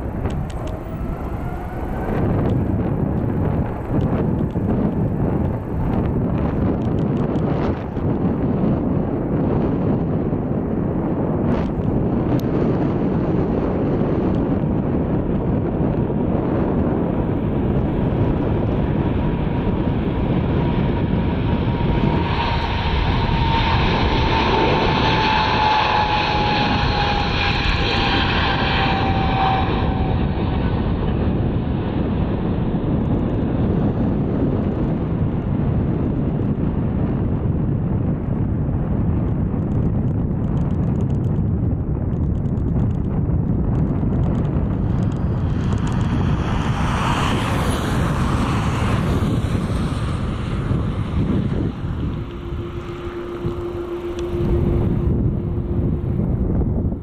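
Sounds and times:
high whine sliding down: 0.0 - 10.6, 11.2 - 35.6, 43.7 - 57.0
jet engines roaring on takeoff: 0.0 - 57.0.

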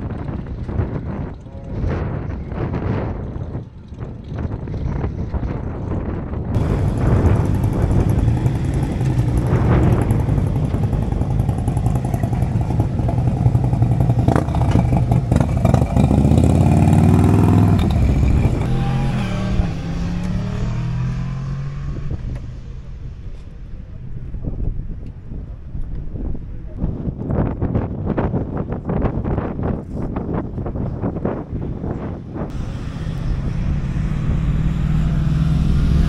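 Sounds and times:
motorcycle engines running: 0.0 - 26.7, 31.9 - 36.0
motorcycle revving: 6.5 - 26.3, 32.4 - 36.0.

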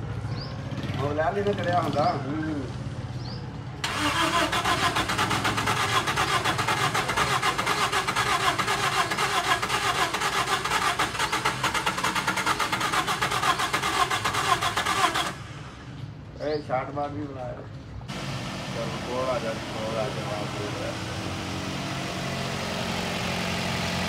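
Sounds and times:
car engine idling: 3.8 - 16.2, 18.1 - 24.0.

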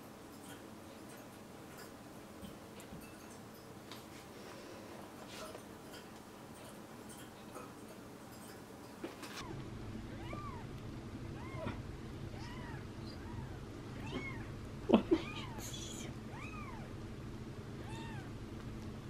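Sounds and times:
low hum: 9.4 - 19.0
kitten mewing: 11.4 - 16.9.

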